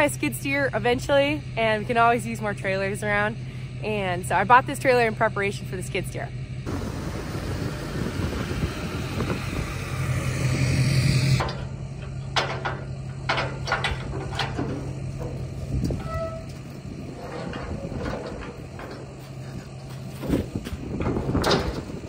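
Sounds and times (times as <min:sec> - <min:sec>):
truck engine idling: 0:00.0 - 0:22.0
metal ramps clanking: 0:11.2 - 0:22.0.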